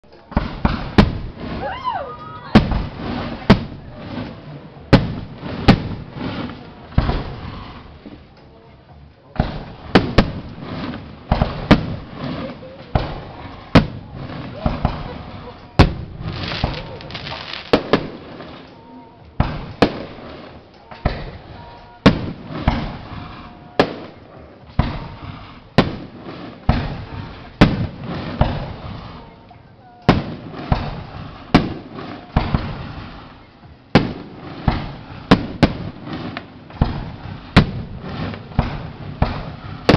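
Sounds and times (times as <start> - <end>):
firework bangs: 0.0 - 8.3, 9.3 - 39.9
firework shells banging: 9.4 - 18.5, 34.0 - 39.9.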